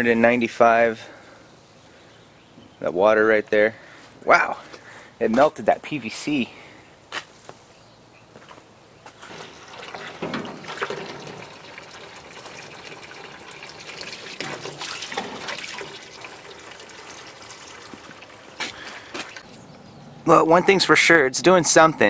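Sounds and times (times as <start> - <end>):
hose water splashing into tank: 9.2 - 19.4.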